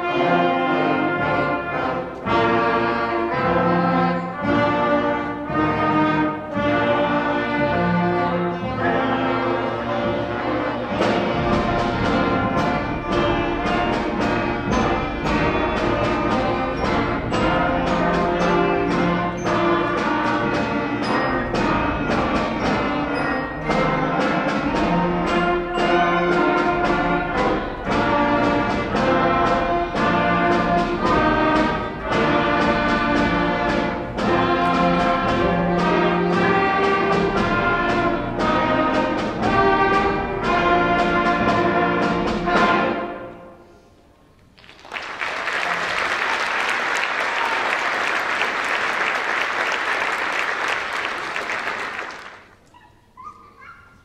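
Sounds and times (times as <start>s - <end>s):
concert band playing: 0.0s - 43.8s, 44.6s - 52.6s
audience applauding: 44.6s - 52.7s.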